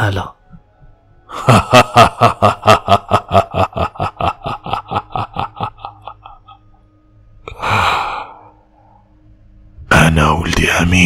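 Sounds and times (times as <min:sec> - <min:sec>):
man laughing: 0:01.3 - 0:06.8.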